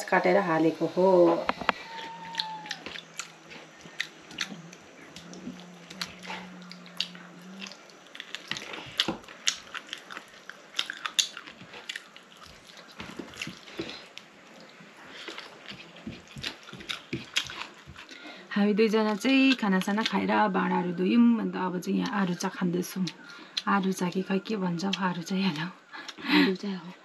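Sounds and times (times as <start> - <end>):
low steady hum: 0.0 - 27.0
person chewing: 1.5 - 18.4.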